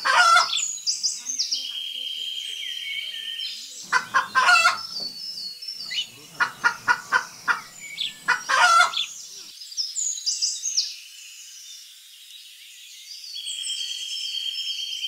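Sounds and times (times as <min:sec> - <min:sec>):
chicken calling: 0:00.0 - 0:00.7, 0:03.8 - 0:09.5
small birds chirping: 0:00.0 - 0:15.0.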